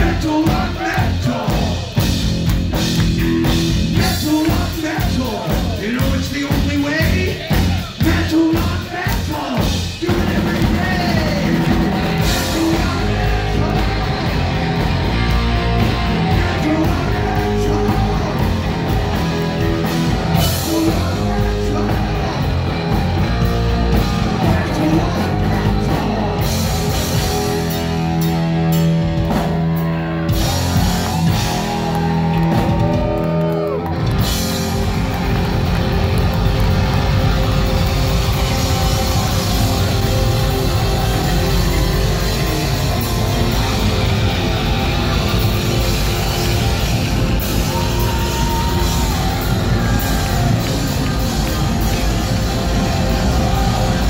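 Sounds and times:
person singing: 0:00.0 - 0:02.0, 0:03.9 - 0:14.9, 0:15.7 - 0:19.2, 0:19.8 - 0:27.8
bass guitar: 0:00.0 - 0:54.0
drum kit: 0:00.0 - 0:54.0
distorted electric guitar: 0:09.6 - 0:54.0.

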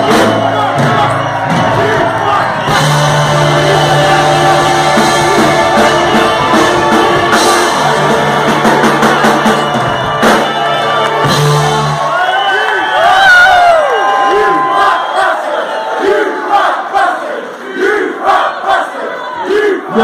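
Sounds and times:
drum kit: 0:00.0 - 0:12.4
ska band playing loudly: 0:00.0 - 0:13.1.

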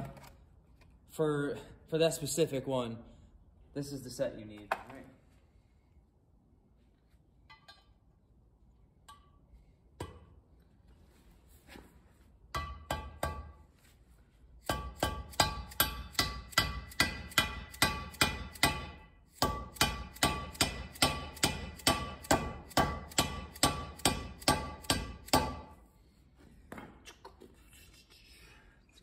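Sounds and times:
mallet tapping metal: 0:12.5 - 0:13.6, 0:14.7 - 0:25.6.

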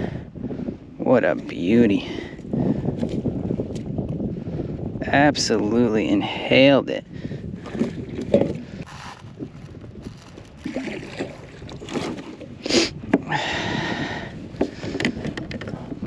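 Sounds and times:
handling rustling: 0:08.8 - 0:11.3.

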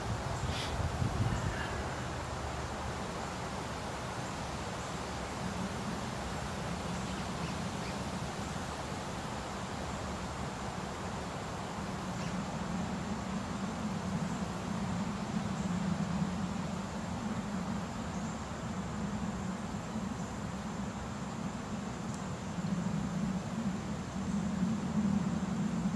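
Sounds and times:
insects: 0:00.0 - 0:25.9
wind in the trees: 0:00.0 - 0:25.9.

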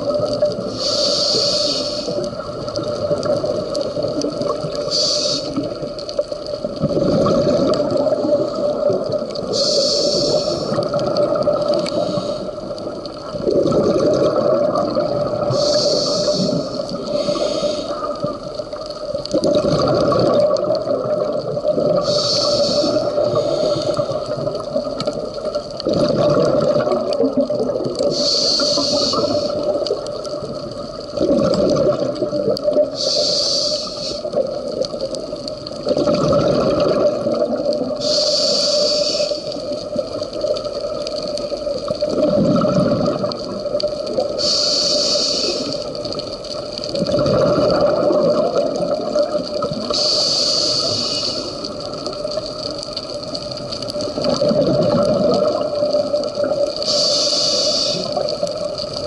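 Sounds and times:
regulator inhalation hiss: 0:00.6 - 0:02.2, 0:04.8 - 0:05.8, 0:09.5 - 0:10.9, 0:11.7 - 0:12.7, 0:15.4 - 0:18.3, 0:22.0 - 0:24.4, 0:28.0 - 0:29.8, 0:32.9 - 0:34.4, 0:38.0 - 0:39.8, 0:44.3 - 0:46.0, 0:49.9 - 0:51.8, 0:56.8 - 0:58.4
exhaust bubbles bubbling: 0:06.6 - 0:09.6, 0:12.9 - 0:17.1, 0:19.2 - 0:28.2, 0:29.1 - 0:33.0, 0:34.3 - 0:38.0, 0:39.7 - 0:44.4, 0:46.9 - 0:50.0, 0:53.4 - 0:56.8.

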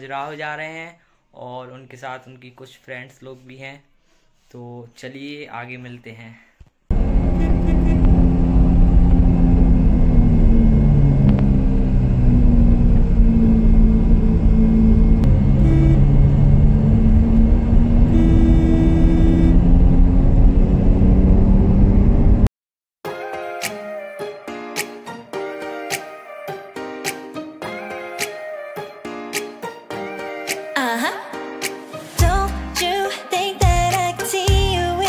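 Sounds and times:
held higher tones: 0:06.9 - 0:20.0
car engine and road rumble: 0:06.9 - 0:22.5.

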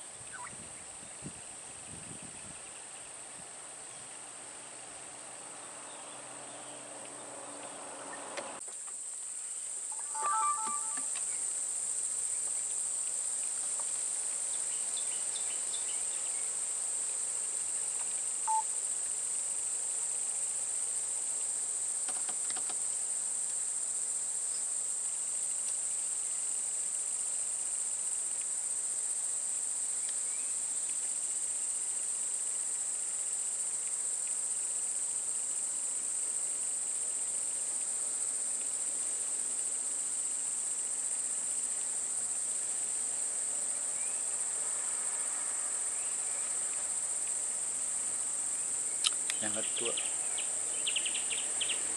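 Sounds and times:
insects droning: 0:00.0 - 0:51.9
faint chirp: 0:10.0 - 0:11.4, 0:18.5 - 0:18.7.

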